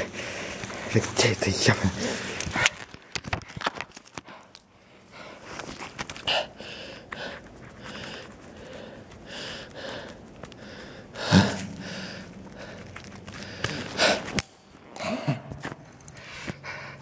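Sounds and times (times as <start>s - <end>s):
man breathing hard: 4.2s - 14.4s, 16.1s - 17.0s.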